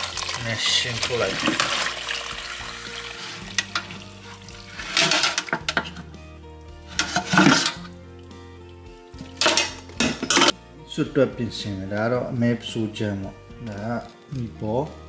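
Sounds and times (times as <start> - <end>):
liquid splashing in pot: 0.0 - 10.6
background music: 0.0 - 15.0
metal scraping: 3.1 - 6.1, 6.8 - 8.0.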